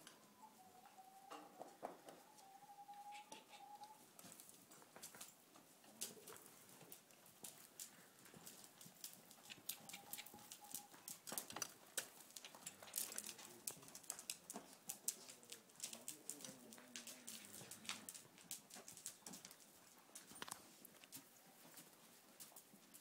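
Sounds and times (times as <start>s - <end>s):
hoofbeats on soft ground: 3.3s - 23.0s
saddle and bridle rattling: 6.4s - 23.0s.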